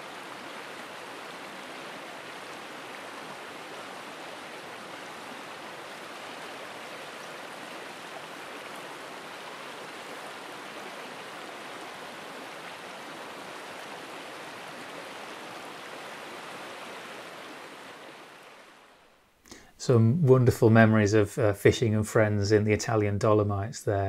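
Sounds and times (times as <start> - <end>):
river flowing over gravel: 0.0 - 19.1.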